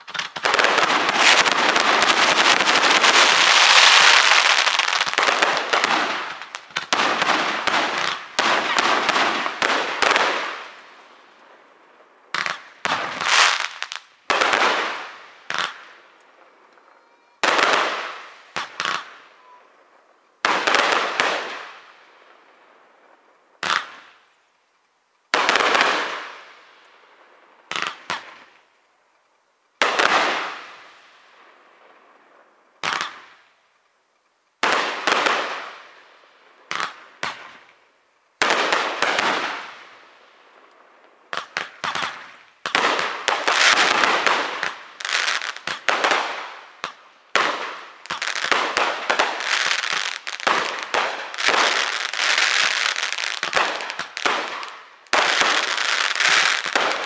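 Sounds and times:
fireworks booming: 0.0 - 21.8, 38.4 - 40.1, 41.2 - 57.0
fireworks barrage of bangs and crackle: 0.0 - 24.4, 25.3 - 28.7, 29.8 - 33.7, 34.6 - 57.0.

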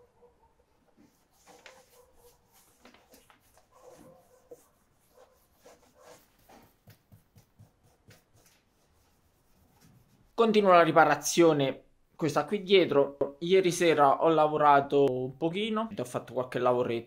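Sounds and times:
faint scratches and taps: 0.9 - 8.7.

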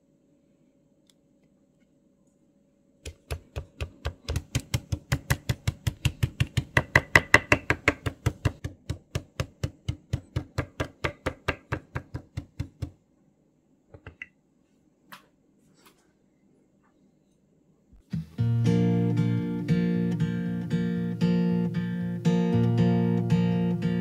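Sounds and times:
knife chopping on cutting board: 3.1 - 12.9.

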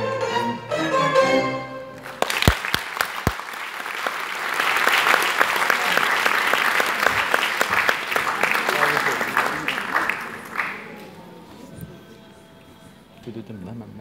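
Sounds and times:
orchestral music: 0.0 - 2.6
audience applause: 2.0 - 11.5.

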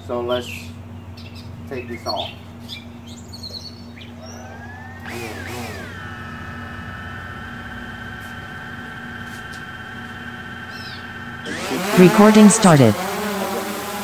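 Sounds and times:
drone motors whining: 4.2 - 14.0.

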